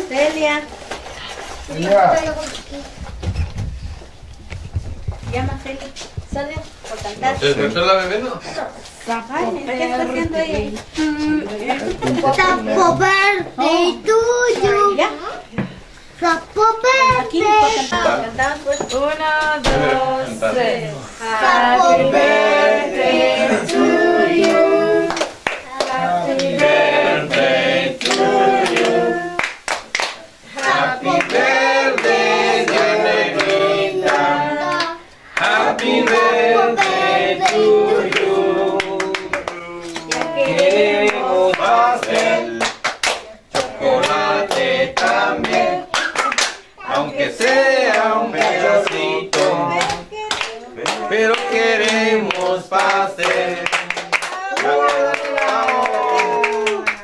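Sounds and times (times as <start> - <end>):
group singing together: 17.1 - 57.0
people clapping along: 21.5 - 57.0.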